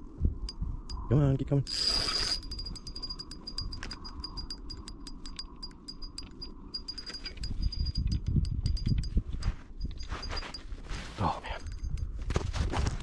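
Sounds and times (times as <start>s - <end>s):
fishing reel clicking: 1.7s - 9.1s.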